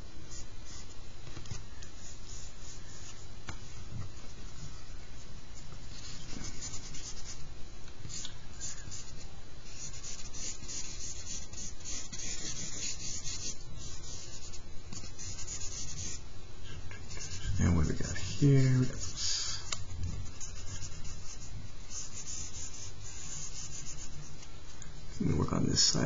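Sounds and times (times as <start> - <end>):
charcoal scratching on paper: 8.0 - 16.2, 16.9 - 24.3.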